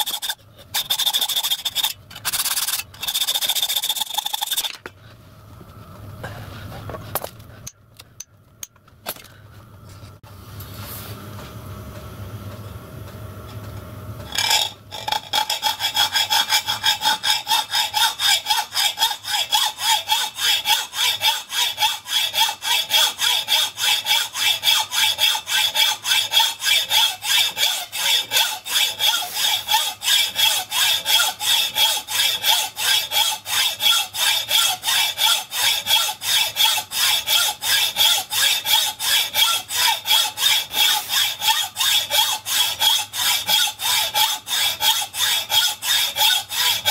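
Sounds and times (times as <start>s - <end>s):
hacksaw cutting metal: 0.0s - 4.9s, 14.3s - 46.9s.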